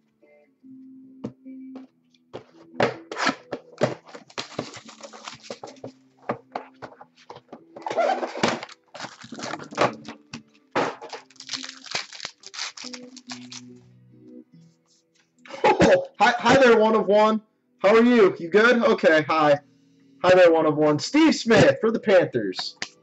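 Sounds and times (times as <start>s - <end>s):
cards clicking and snapping: 2.9s - 5.8s, 8.4s - 13.7s, 22.8s - 23.0s
packaging rustling: 3.1s - 6.0s, 6.6s - 13.8s.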